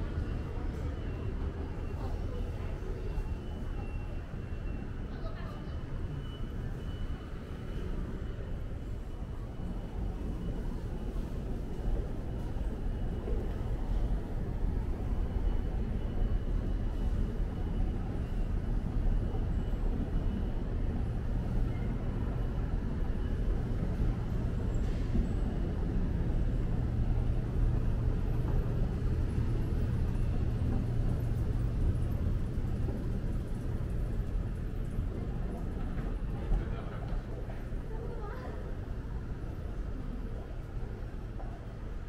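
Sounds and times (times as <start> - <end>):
city traffic rumble: 0.0 - 42.0.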